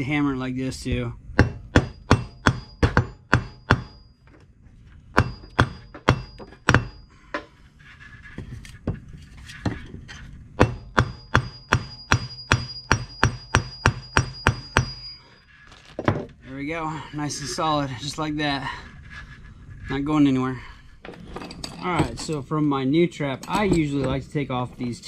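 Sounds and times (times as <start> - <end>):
hammer striking metal: 1.4 - 4.2, 5.1 - 7.5, 10.6 - 15.3.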